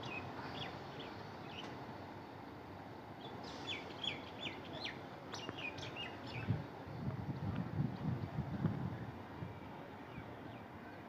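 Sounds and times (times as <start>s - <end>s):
small birds chirping: 3.2s - 6.5s.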